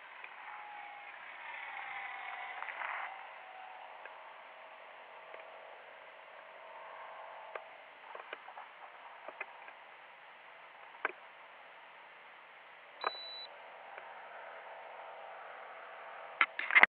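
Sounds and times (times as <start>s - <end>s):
faint hiss: 0.0s - 16.9s
high-pitched electronic beep: 13.0s - 13.5s.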